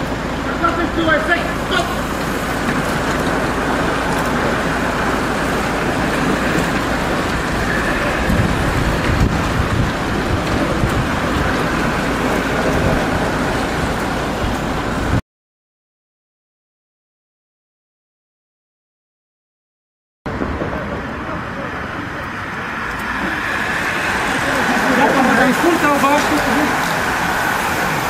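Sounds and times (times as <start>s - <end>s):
wind buffeting microphone: 2.0s - 15.2s.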